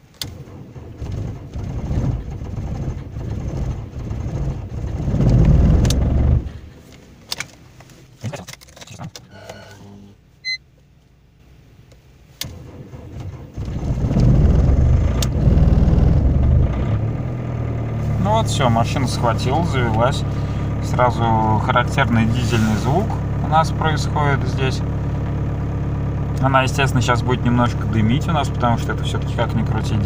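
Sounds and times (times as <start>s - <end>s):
diesel engine starting: 0.0s - 7.4s, 11.6s - 30.0s
diesel engine cranking: 0.0s - 7.9s, 12.2s - 30.0s
short electronic beep: 10.4s - 10.6s.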